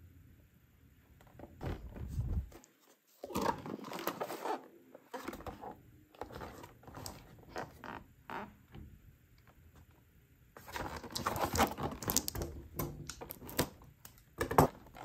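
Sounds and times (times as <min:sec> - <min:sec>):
packaging crinkling and scraping: 0:01.8 - 0:07.9, 0:10.6 - 0:13.9.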